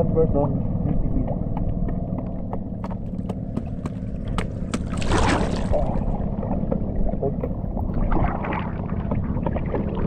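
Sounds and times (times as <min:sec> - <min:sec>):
low rumble: 0:00.0 - 0:10.0
water lapping and slapping: 0:02.5 - 0:10.0
water splashes: 0:03.6 - 0:10.0.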